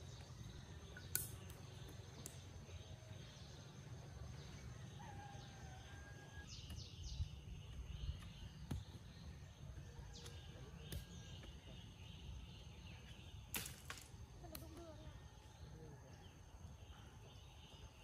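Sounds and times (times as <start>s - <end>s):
high insect tone: 0.0s - 9.8s
bird chirps: 0.0s - 13.8s.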